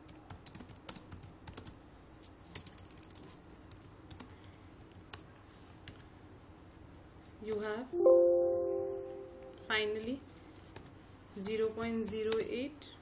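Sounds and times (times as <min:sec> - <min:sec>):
computer keyboard key clicks: 0:00.1 - 0:01.8.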